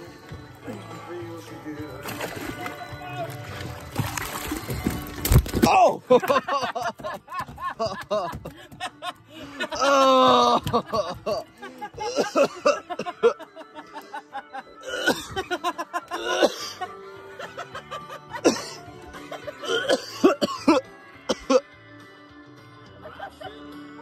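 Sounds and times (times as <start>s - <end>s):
background music: 0.0s - 24.0s
man coughing and groaning: 9.6s - 13.5s, 14.8s - 15.5s, 16.1s - 16.8s, 18.3s - 18.9s, 19.5s - 21.7s.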